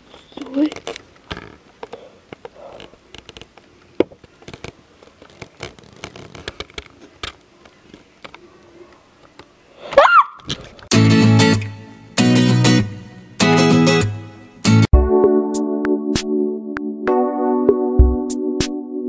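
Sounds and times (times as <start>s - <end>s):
rustling: 0.0s - 10.9s
girl's short loud cry: 10.0s - 10.4s.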